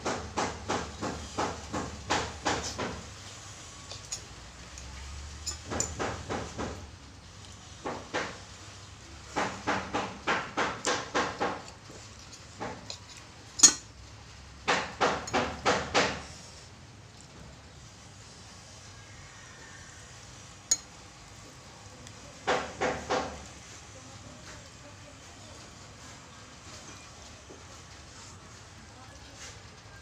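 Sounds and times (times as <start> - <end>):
cutlery clinking on ceramic plate: 12.6 - 13.9.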